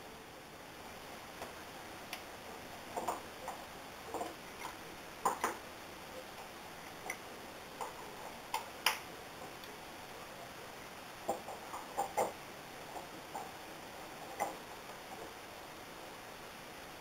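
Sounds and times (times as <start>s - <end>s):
faint steady hiss: 0.0s - 17.0s.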